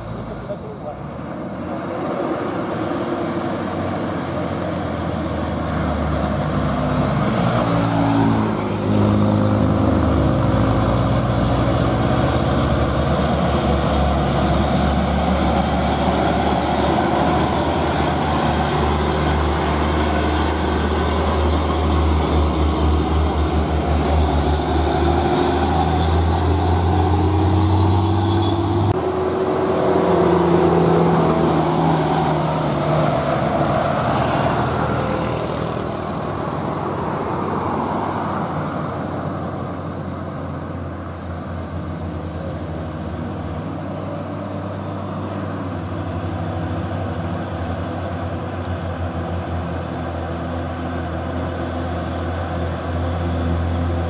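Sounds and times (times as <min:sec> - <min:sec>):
diesel truck engines passing: 0:00.0 - 0:54.0
road noise: 0:00.0 - 0:54.0.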